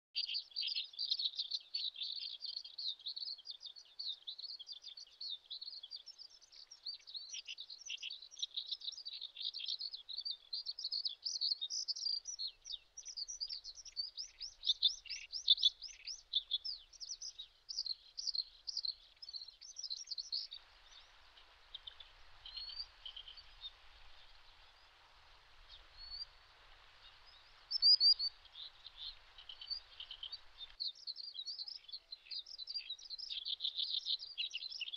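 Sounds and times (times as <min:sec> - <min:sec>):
birds chirping: 0:00.2 - 0:34.9
faint hiss: 0:00.2 - 0:34.9.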